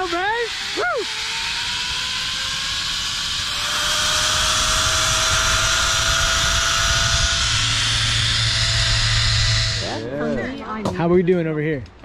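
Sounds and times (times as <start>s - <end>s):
zipline pulleys whining on cable: 0.0s - 10.5s
wind rushing over microphone: 3.5s - 10.0s.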